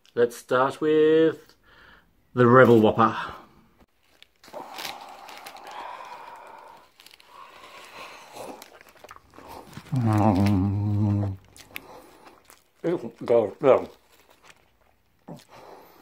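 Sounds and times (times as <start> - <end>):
paper wrapper crinkling: 3.9 - 15.9
soft chewing: 3.9 - 16.0
man humming mmm: 9.8 - 11.6.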